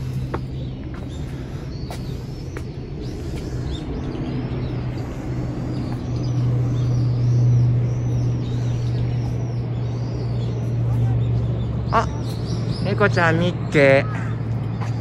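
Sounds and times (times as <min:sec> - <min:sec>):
small birds chirping: 0:00.0 - 0:15.0
steady low hum: 0:00.0 - 0:15.0.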